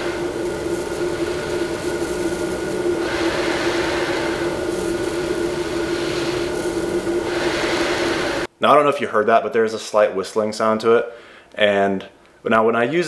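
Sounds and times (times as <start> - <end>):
air hissing through a mask: 0.0 - 8.5
steady low hum: 0.0 - 8.6.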